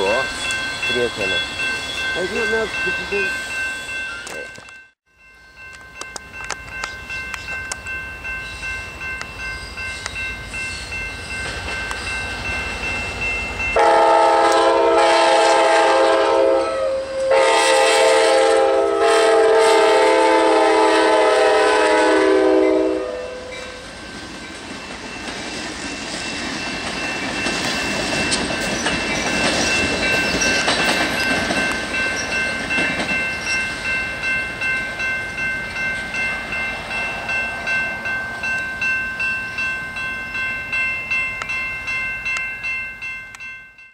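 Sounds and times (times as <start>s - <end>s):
locomotive air horn blasts: 13.8s - 23.8s
train wheels clacking: 23.9s - 39.8s.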